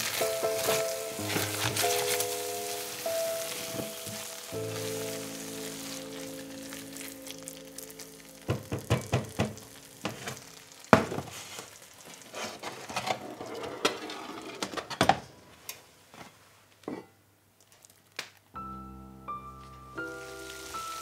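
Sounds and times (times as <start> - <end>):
spatula knock on pan: 8.5 - 10.3.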